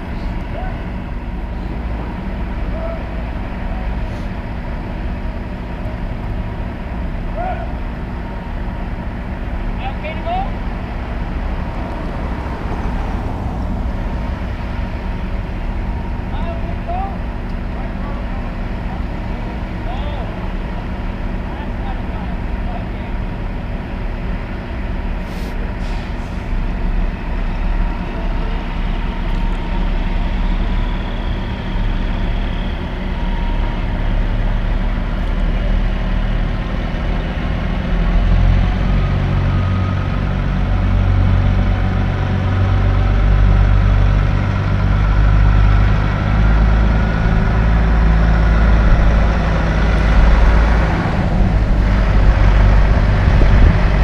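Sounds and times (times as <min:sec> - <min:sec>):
diesel truck engine running: 0:00.0 - 0:54.0.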